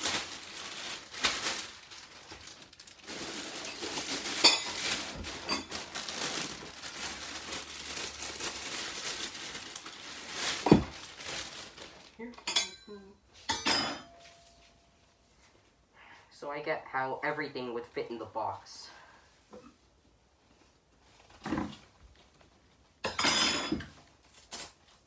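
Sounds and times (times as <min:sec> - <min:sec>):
plastic bag crinkling: 0:00.0 - 0:12.4.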